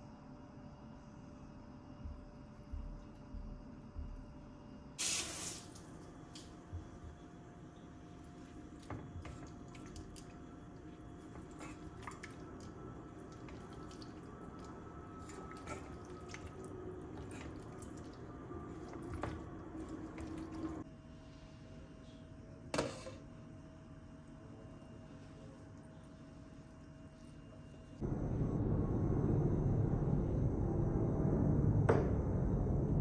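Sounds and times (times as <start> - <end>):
food sloshing as pot is stirred: 7.8 - 20.8.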